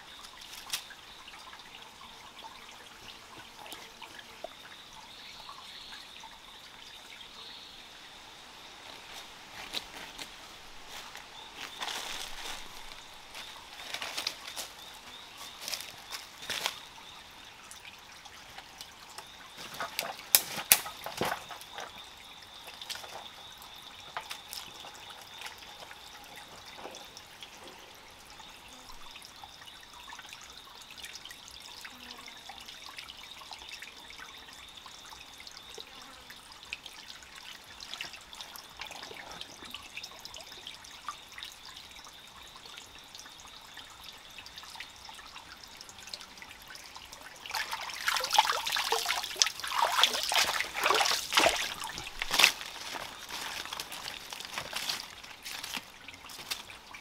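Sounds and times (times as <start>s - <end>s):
water trickling and dripping: 0.0s - 57.0s
boots wading and splashing: 47.5s - 56.7s
hands scooping mud from water: 47.6s - 55.9s.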